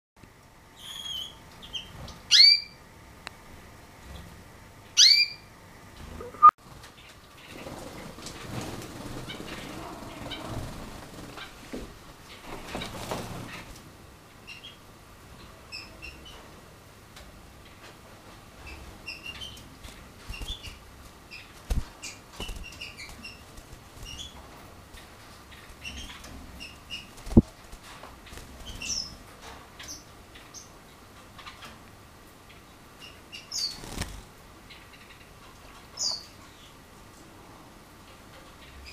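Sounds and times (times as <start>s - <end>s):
canary chirps: 0.8s - 2.8s, 4.9s - 5.5s, 9.0s - 11.5s, 14.4s - 14.9s, 15.7s - 16.4s, 18.6s - 27.5s, 28.2s - 29.2s, 29.8s - 31.7s, 32.5s - 35.4s, 36.0s - 36.8s
wing flapping: 6.0s - 13.8s, 19.8s - 29.2s, 33.6s - 34.4s.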